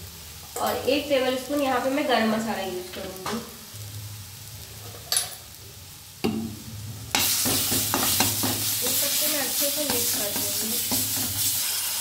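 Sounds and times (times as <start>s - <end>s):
loud sizzle in hot pan: 0.0s - 12.0s
spoon knocking on pan: 7.1s - 8.7s
spoon stirring in pan: 7.1s - 12.0s.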